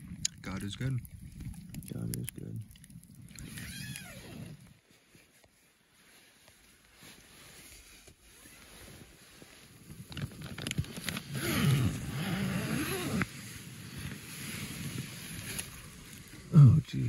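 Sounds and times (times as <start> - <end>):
tent zipper being pulled open: 3.3 - 4.9, 7.0 - 16.5
tent fabric rustling: 3.5 - 16.5
zipper pull clicks: 10.2 - 13.3.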